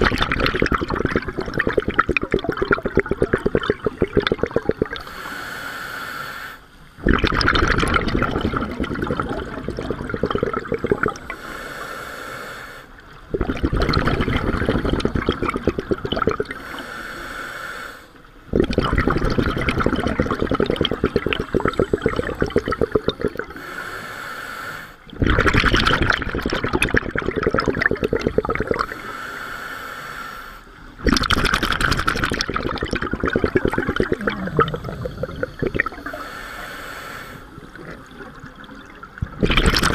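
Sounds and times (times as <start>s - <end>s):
exhaled bubbles rushing: 0.0s - 5.1s, 7.0s - 11.4s, 13.2s - 16.6s, 18.5s - 23.6s, 25.1s - 29.0s, 31.0s - 36.2s, 37.5s - 39.9s
regulator inhalation hiss: 5.0s - 6.8s, 11.2s - 13.0s, 16.6s - 18.2s, 23.5s - 25.1s, 28.8s - 30.8s, 34.2s - 37.6s.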